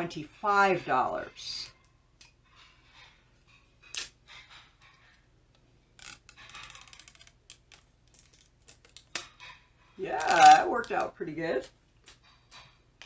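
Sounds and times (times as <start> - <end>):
plastic wrapper crinkling: 6.0 - 9.3, 10.0 - 12.2.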